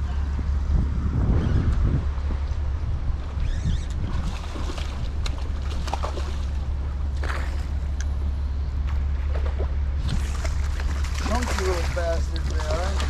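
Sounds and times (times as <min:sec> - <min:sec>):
steady low rumble: 0:00.0 - 0:13.0
fish thrashing and splashing water: 0:04.0 - 0:07.8, 0:09.2 - 0:13.0.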